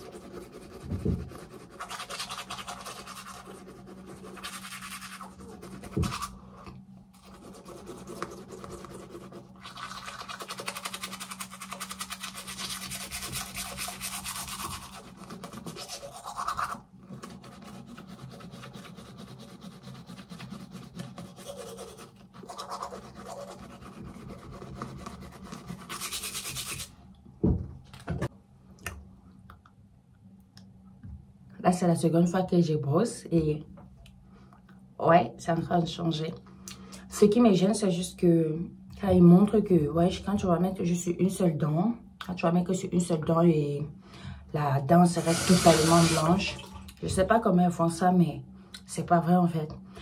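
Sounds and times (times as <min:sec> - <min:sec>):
toothbrush scrubbing teeth: 0:00.0 - 0:26.9, 0:45.2 - 0:46.4.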